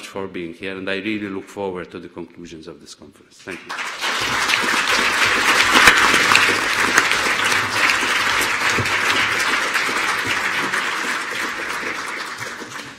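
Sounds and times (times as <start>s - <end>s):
audience applauding: 3.5s - 12.9s.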